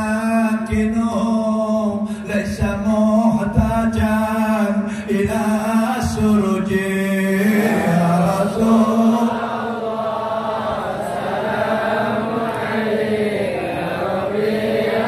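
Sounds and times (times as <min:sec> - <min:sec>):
man chanting through microphone: 0:00.0 - 0:09.9.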